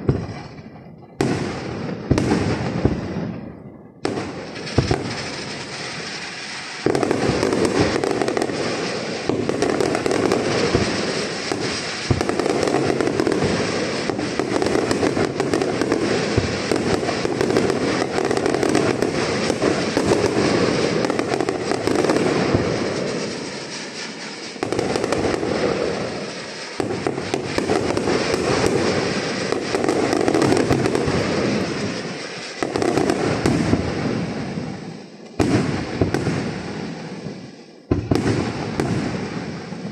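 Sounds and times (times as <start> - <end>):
fireworks bursts and crackling: 0.0 - 39.9.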